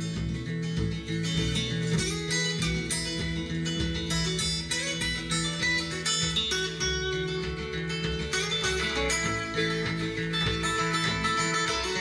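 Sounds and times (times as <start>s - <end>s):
guitar music over bass: 0.0s - 12.0s.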